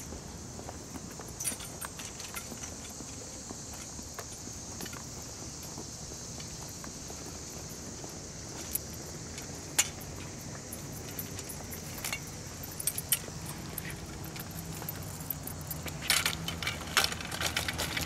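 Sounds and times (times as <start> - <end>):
low background noise: 0.0 - 18.0
metal tripod clinking and rattling: 8.7 - 18.0.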